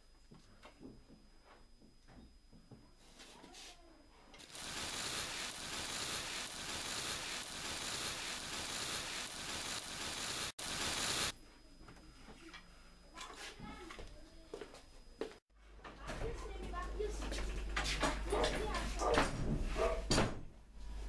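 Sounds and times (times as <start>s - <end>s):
loud rustling hiss: 4.4s - 11.3s.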